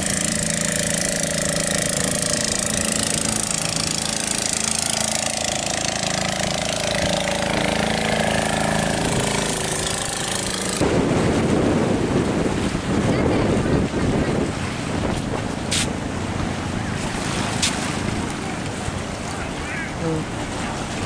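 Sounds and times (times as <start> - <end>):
boat engine running: 0.0 - 21.0
wind buffeting microphone: 6.8 - 21.0.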